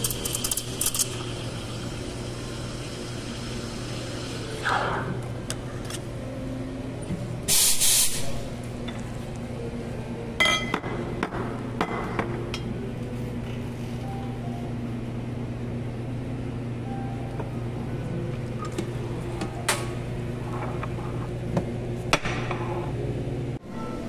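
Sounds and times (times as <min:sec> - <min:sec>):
steady low hum: 0:00.0 - 0:24.0
steam wand hiss: 0:07.5 - 0:08.2.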